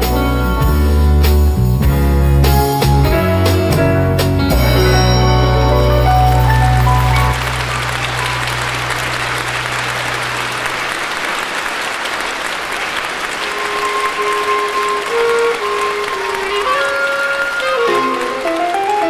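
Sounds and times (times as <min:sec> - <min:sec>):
slow instrumental melody: 0:00.0 - 0:10.2
low chord of a song: 0:03.8 - 0:11.0
audience applauding: 0:04.6 - 0:19.0.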